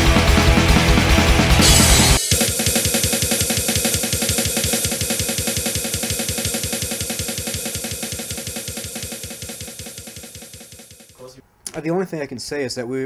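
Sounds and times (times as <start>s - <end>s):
fast bass drum strokes: 0.0s - 11.2s
cymbal wash: 1.6s - 11.2s.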